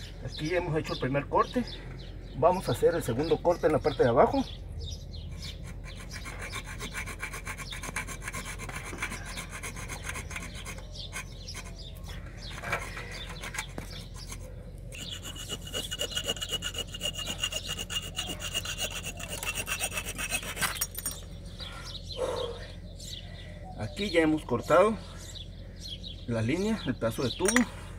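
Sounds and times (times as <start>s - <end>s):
hacksaw sawing metal pipe: 5.4s - 21.2s.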